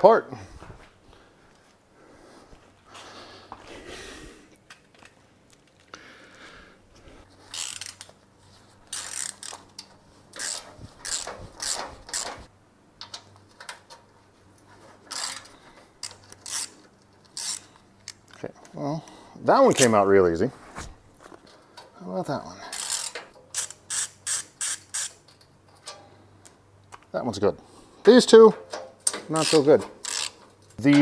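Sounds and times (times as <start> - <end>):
ratchet wrench clicking: 7.5 - 8.1, 8.9 - 12.4, 15.1 - 18.2, 22.7 - 25.2, 29.4 - 30.4.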